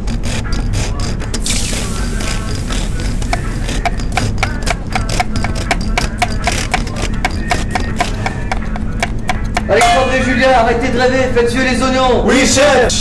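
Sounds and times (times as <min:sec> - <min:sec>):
steady low hum: 0:00.0 - 0:13.0
knife chopping on cutting board: 0:00.3 - 0:10.0.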